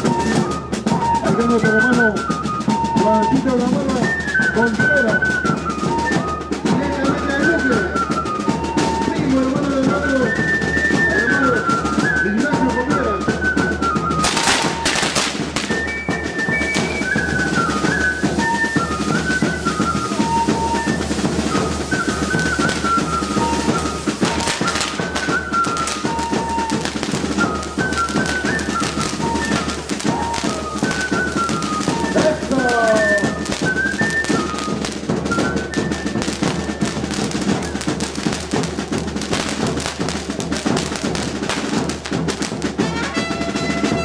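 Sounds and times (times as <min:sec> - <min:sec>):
steady drumming: 0:00.0 - 0:44.0
wind instrument melody: 0:00.0 - 0:44.0
fireworks hissing: 0:13.3 - 0:43.9.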